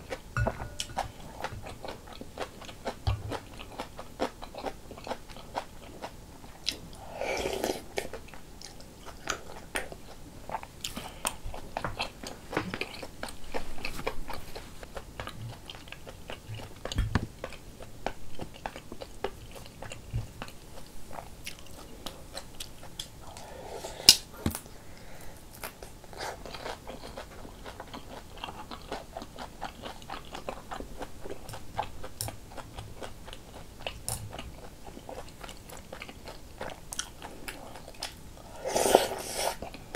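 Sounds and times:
slurping from a spoon: 7.0s - 8.1s, 38.4s - 39.7s
wet chewing: 7.5s - 24.6s, 25.5s - 38.2s.

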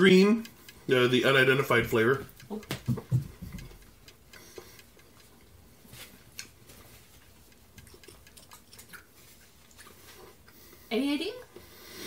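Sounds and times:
mouth clicks chewing candy: 6.3s - 10.6s.

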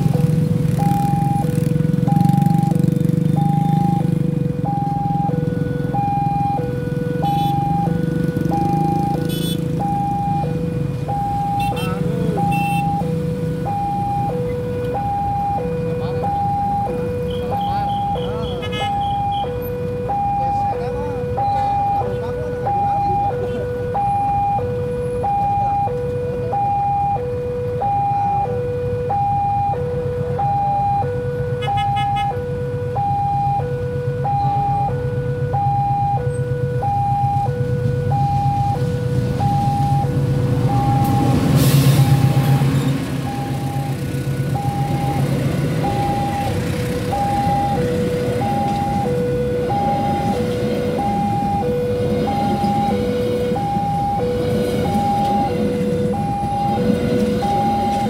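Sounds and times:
level crossing two-tone alarm: 0.0s - 58.0s
train rumbling past: 38.8s - 58.0s.

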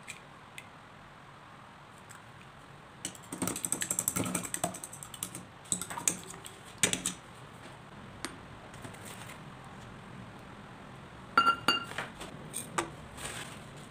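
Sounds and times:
fork beating egg in bowl: 3.1s - 7.2s.

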